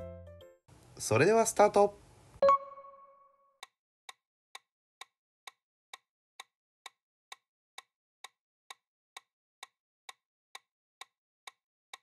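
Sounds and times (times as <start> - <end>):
timer ticking: 3.6 - 12.0.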